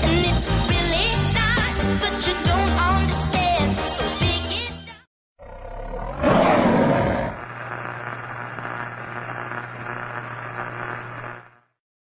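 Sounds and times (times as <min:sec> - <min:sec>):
static-like noise: 0:07.3 - 0:11.8.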